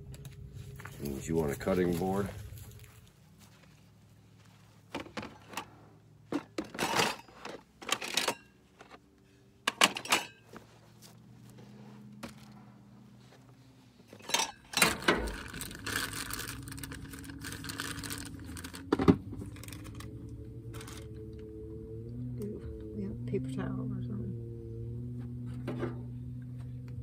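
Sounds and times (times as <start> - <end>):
plastic containers clattering: 4.8 - 10.7, 14.1 - 20.1
plastic bag crinkling: 15.2 - 20.1.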